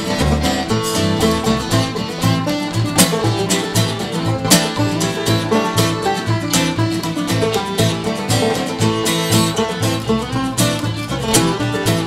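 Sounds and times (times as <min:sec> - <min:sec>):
banjo: 0:00.0 - 0:12.0
bass notes: 0:00.0 - 0:12.0
strummed acoustic guitar: 0:00.0 - 0:12.0.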